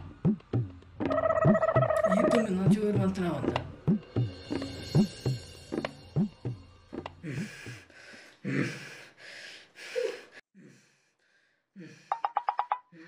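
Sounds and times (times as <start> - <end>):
man panting heavily: 7.2 - 12.2.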